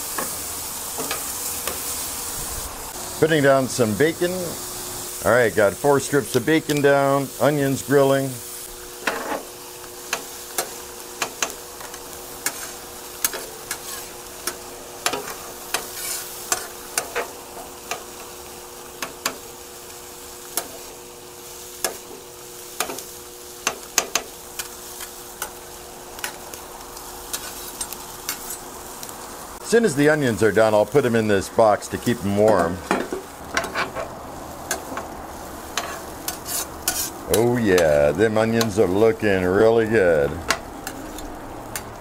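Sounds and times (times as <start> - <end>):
bacon and onions sizzling: 0.0 - 42.0
metal spatulas scraping griddle: 9.0 - 9.5, 10.1 - 18.2, 27.3 - 28.7, 32.0 - 38.0, 40.4 - 41.9.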